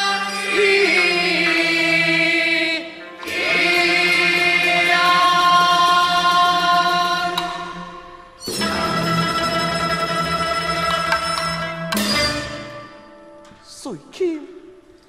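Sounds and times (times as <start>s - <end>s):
man singing opera: 0.0s - 7.8s
opera orchestra accompaniment: 0.0s - 15.0s.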